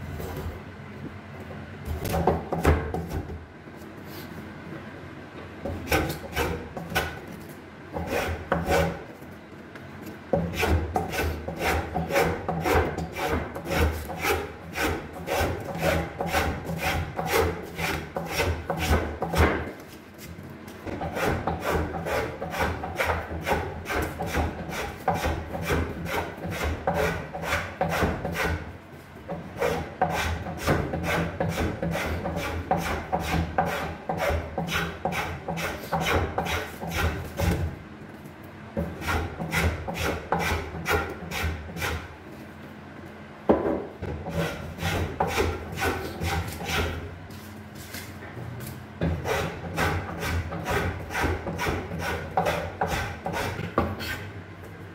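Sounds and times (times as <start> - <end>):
tool rasping on wood: 5.8 - 7.2, 8.0 - 9.0, 10.4 - 19.5, 21.0 - 28.6, 29.6 - 37.4, 38.8 - 42.1, 44.2 - 47.0, 49.2 - 54.2.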